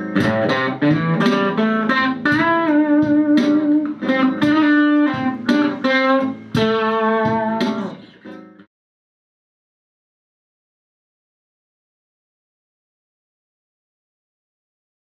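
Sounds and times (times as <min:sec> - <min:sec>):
electric guitar blues lead: 0:00.0 - 0:08.7.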